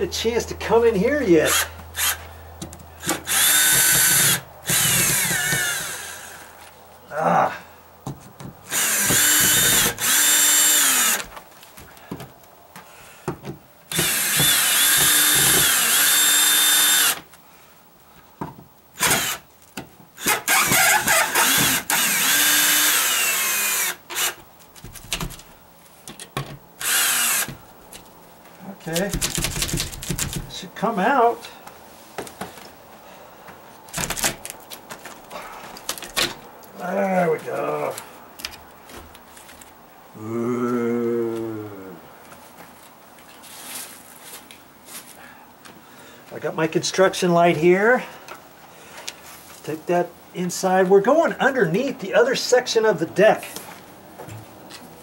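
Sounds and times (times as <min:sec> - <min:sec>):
cordless drill whining: 0:01.5 - 0:02.2, 0:03.0 - 0:06.4, 0:08.7 - 0:11.3, 0:13.9 - 0:17.2, 0:19.0 - 0:19.4, 0:20.2 - 0:24.4, 0:26.8 - 0:27.6.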